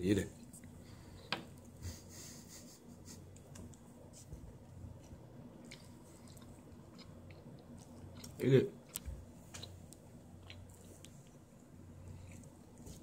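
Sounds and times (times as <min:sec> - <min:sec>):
cat licking and chewing: 0:03.4 - 0:13.0.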